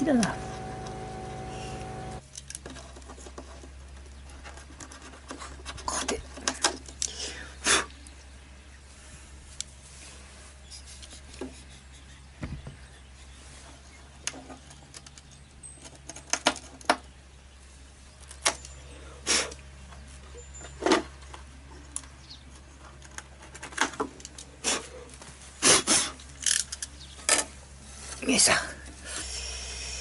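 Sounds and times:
low hum: 0:00.0 - 0:02.2
metal parts and tools clicking: 0:26.3 - 0:27.5.

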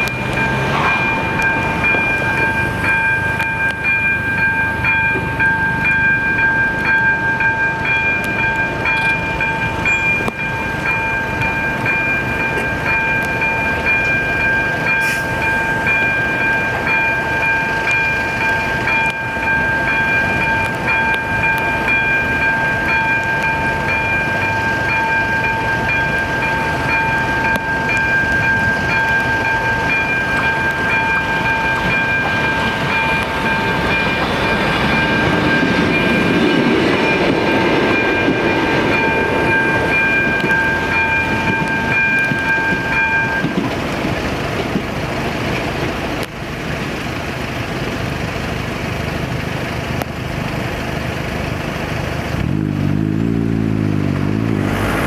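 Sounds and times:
level crossing bell ringing: 0:00.0 - 0:43.6
diesel railcar passing: 0:00.0 - 0:55.0
road vehicle engine revving: 0:52.1 - 0:55.0.

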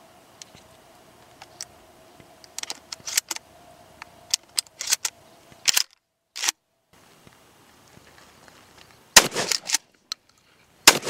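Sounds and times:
shotgun metallic clicks and clacks: 0:04.4 - 0:06.6, 0:09.2 - 0:10.2.

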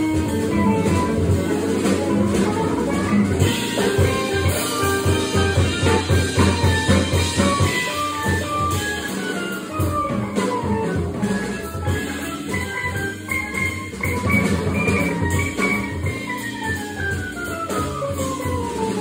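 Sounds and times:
jazz trio playing: 0:00.0 - 0:19.0.

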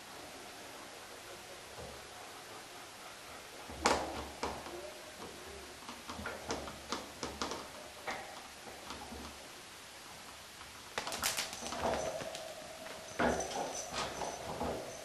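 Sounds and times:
wire mesh clicking and rattling: 0:10.6 - 0:15.0.

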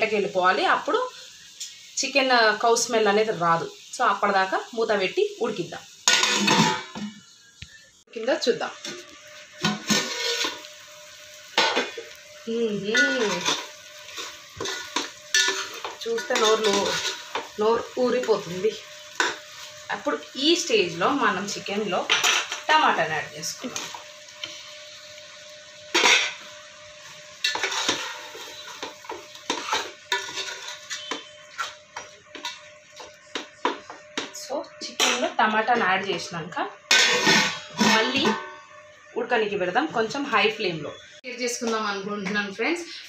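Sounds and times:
food sizzling: 0:00.0 - 0:43.0
spoon scraping pot: 0:09.6 - 0:10.7, 0:13.0 - 0:17.6, 0:27.4 - 0:34.4, 0:36.9 - 0:38.6.

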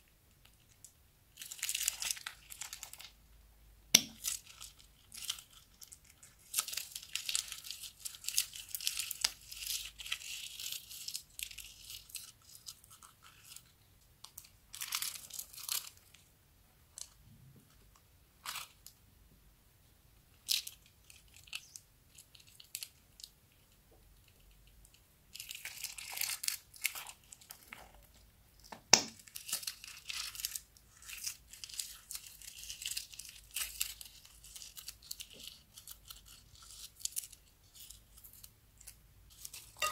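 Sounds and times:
plastic bags crinkling: 0:29.2 - 0:39.9.

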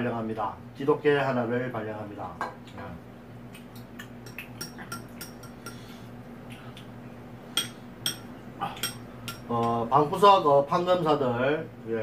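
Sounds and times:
faint steady hum: 0:00.0 - 0:12.0
utensils clinking against dishes: 0:04.3 - 0:05.9, 0:07.6 - 0:09.8.

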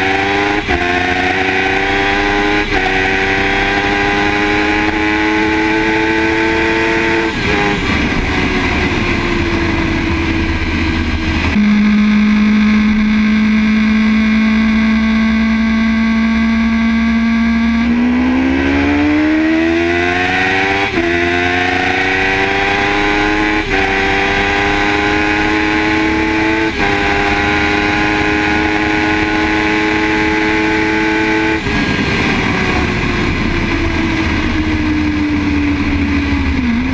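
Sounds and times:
motorcycle engine at full throttle: 0:00.0 - 0:36.9
heavy wind rush: 0:06.9 - 0:11.6, 0:31.6 - 0:36.9.

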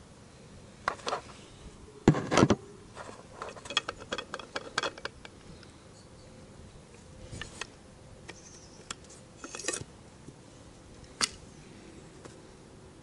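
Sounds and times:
mortar replica clicks and rattles: 0:03.0 - 0:05.4.

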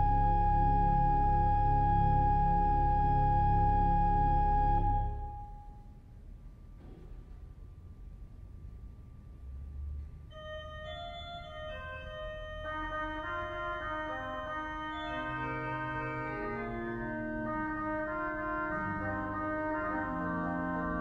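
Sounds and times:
pipe organ playing slowly: 0:00.0 - 0:05.9, 0:10.3 - 0:21.0.

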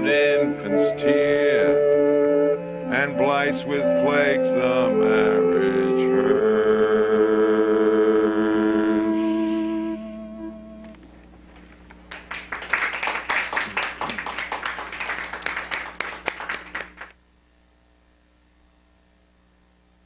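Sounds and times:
studio audience applauding: 0:12.1 - 0:17.2.

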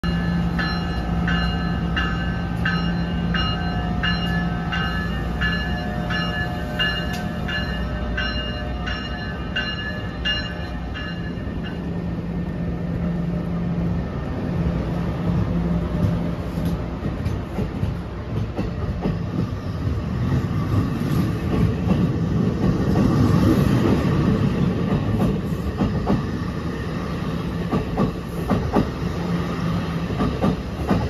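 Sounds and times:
train bell ringing: 0:00.0 - 0:12.3
train cars rolling rumble: 0:00.0 - 0:31.0.

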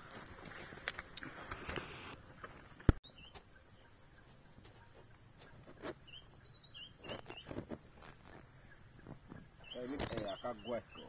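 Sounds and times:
small bird chirping: 0:03.0 - 0:11.0.

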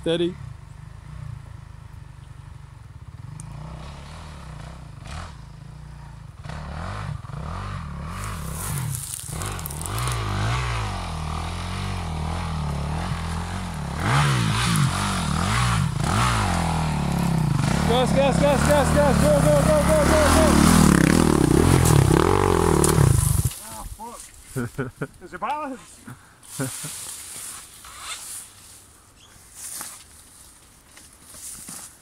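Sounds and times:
dirt bike engine revving: 0:03.0 - 0:23.8.

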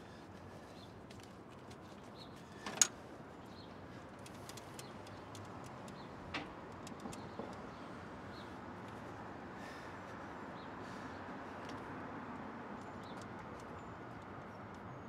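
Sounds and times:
city street hum: 0:00.0 - 0:15.0.

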